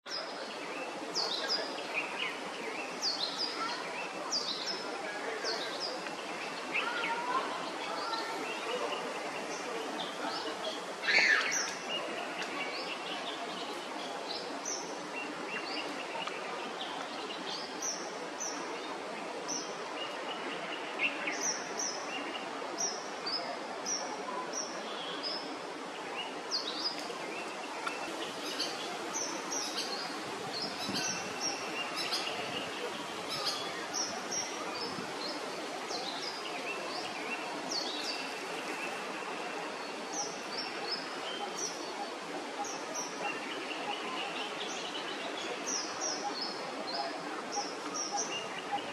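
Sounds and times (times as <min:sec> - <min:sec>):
background hiss: 0:00.1 - 0:48.9.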